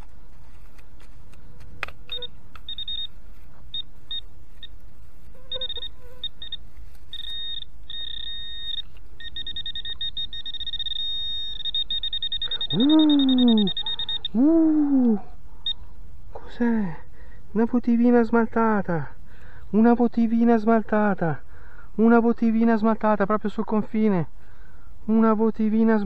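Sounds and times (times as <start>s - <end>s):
metal detector beeping: 2.0s - 15.8s
short voice sound: 12.7s - 15.2s.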